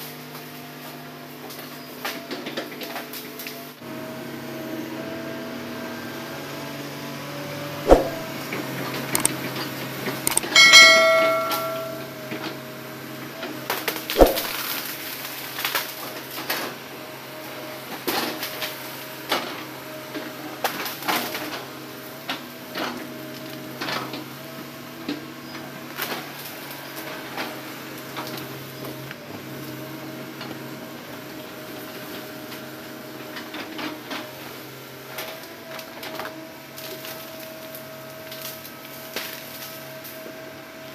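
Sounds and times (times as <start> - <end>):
sharp knocks: 7.9 - 8.2, 10.3 - 12.1, 14.2 - 14.5
excavator engine running: 8.1 - 11.2
short ringing squeal: 10.4 - 12.2.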